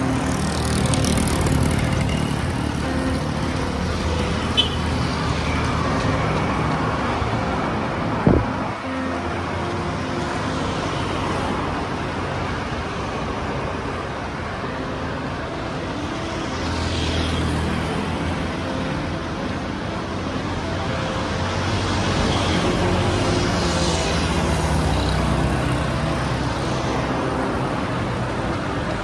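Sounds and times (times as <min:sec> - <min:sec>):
vehicle passing: 0:00.0 - 0:08.6
road traffic noise: 0:00.0 - 0:29.0.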